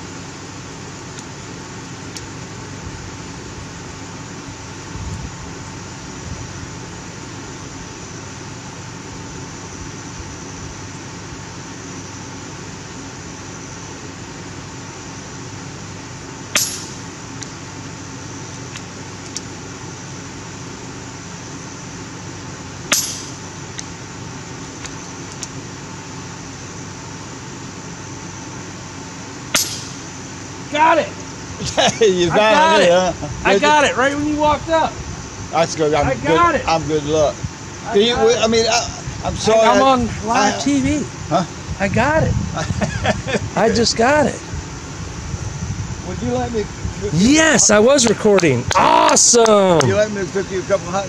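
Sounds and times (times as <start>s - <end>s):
background hiss: 0.0s - 51.0s
air rifle shots: 16.5s - 17.1s, 22.9s - 23.4s, 29.5s - 30.1s.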